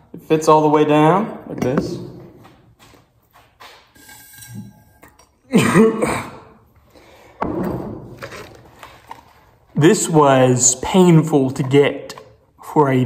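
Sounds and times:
man clearing his throat: 5.5 - 6.6
man coughing: 5.5 - 6.6.

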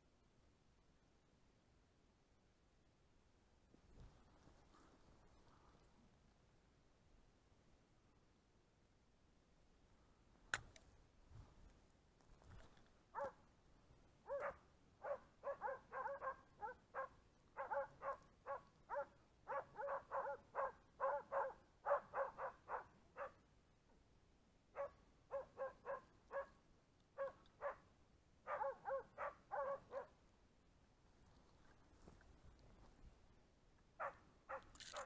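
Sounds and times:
dogs barking: 13.2 - 13.4, 14.3 - 23.4, 24.8 - 26.5, 27.2 - 27.8, 28.5 - 30.1, 34.0 - 34.7.

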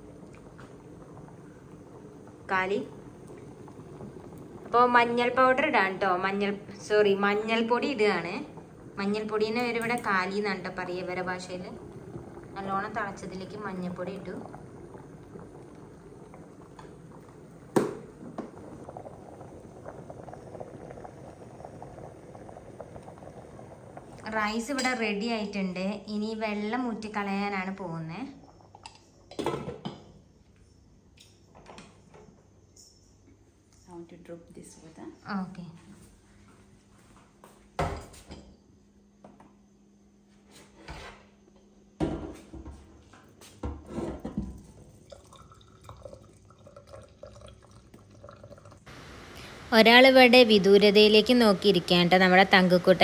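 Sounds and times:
water boiling and bubbling: 0.0 - 30.9, 41.8 - 53.0
faint steady hum: 0.0 - 53.0.

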